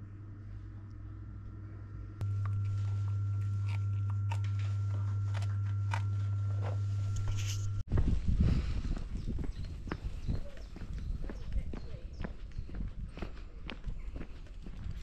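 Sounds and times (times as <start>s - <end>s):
steady low hum: 0.0s - 15.0s
dog chewing and crunching: 2.2s - 6.2s.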